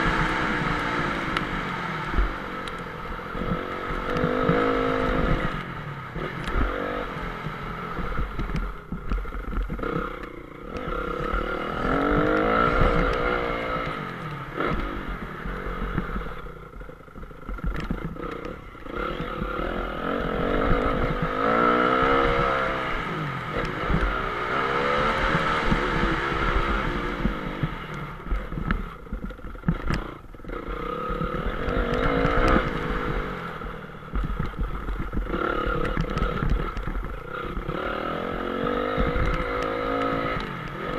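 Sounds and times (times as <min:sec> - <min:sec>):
motorcycle engine revving: 0:00.0 - 0:40.9
bike knocks and rattles: 0:14.6 - 0:21.5, 0:34.1 - 0:38.0.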